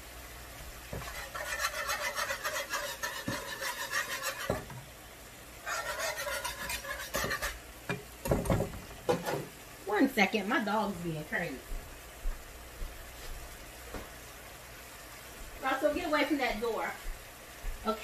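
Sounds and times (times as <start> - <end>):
whisk scraping a pan: 0.8 - 4.9, 5.6 - 9.5.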